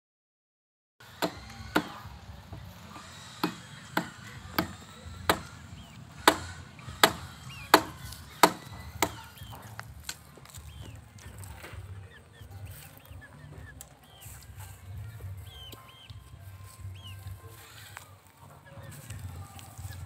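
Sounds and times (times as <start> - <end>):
blade chopping: 1.0 - 10.2.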